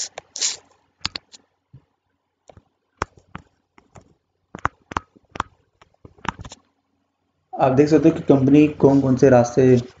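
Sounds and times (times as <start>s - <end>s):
stylus tapping on tablet screen: 1.0s - 6.6s.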